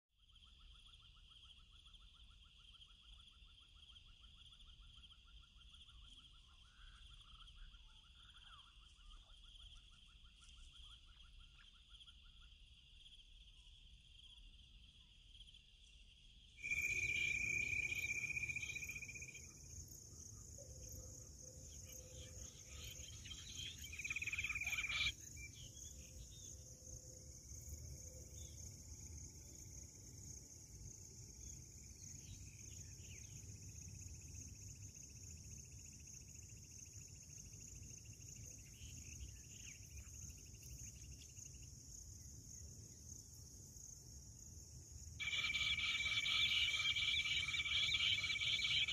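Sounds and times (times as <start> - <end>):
insects droning: 0.2 - 48.9
insect pulsing trill: 16.6 - 48.9.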